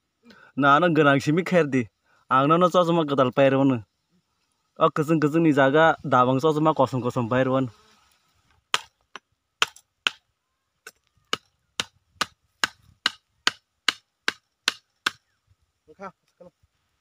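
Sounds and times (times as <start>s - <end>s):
hatchet striking bamboo: 8.7s - 10.2s, 10.8s - 15.3s.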